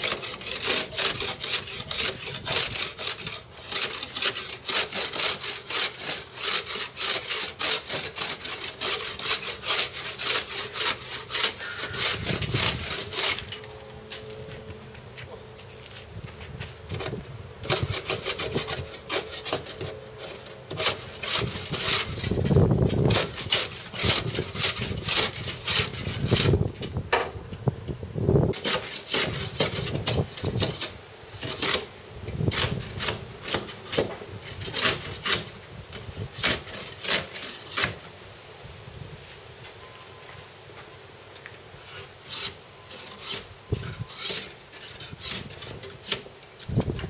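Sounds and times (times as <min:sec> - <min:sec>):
hand scraper rasping on hull: 0:00.0 - 0:13.7, 0:16.9 - 0:26.7, 0:28.5 - 0:31.9, 0:32.5 - 0:38.1, 0:41.8 - 0:47.0.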